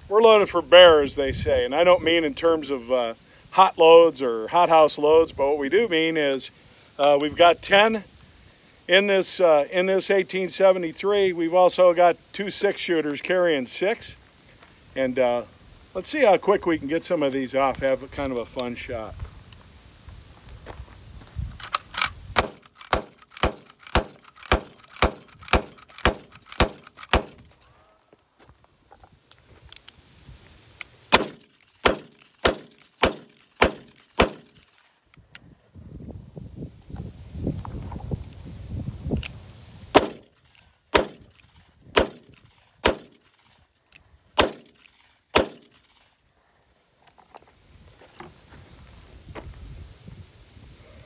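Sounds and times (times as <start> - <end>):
rifle lever cycling: 21.6 - 27.4
rifle shots: 21.8 - 27.5, 31.1 - 34.8, 40.0 - 41.4, 42.0 - 43.5, 44.4 - 46.1.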